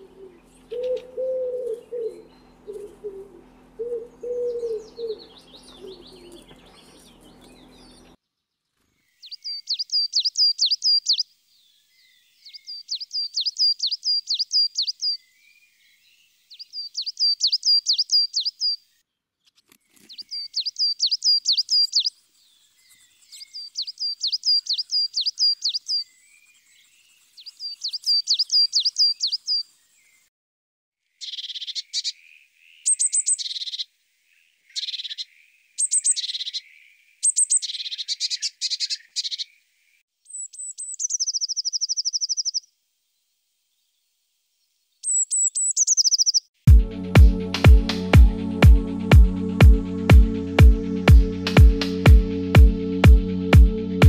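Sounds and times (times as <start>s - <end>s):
pigeon cooing: 0.0s - 7.1s
songbird singing high notes: 9.2s - 11.2s, 40.3s - 42.6s, 45.0s - 46.5s.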